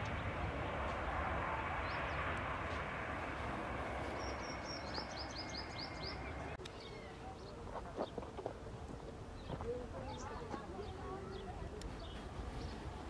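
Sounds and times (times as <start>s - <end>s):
distant jet engine rush: 0.0s - 13.0s
small birds chirping: 4.0s - 13.0s.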